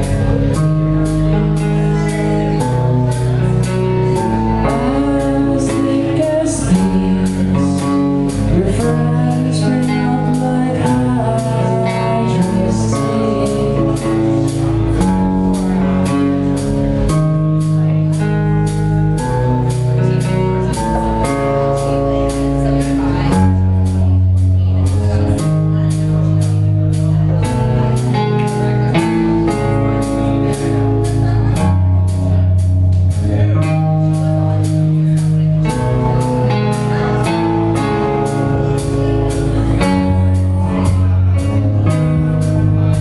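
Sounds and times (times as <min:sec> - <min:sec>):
bass guitar: 0:00.0 - 0:43.0
drum kit: 0:00.0 - 0:43.0
electric guitar: 0:00.0 - 0:43.0
man singing: 0:04.4 - 0:14.9.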